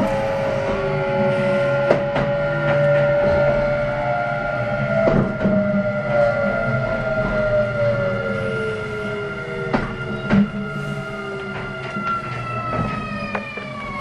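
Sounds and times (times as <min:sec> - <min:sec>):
electric train motor whine: 0:00.0 - 0:14.0
rumble of train wheels: 0:00.0 - 0:14.0
sharp clicks from rail joints: 0:11.4 - 0:14.0.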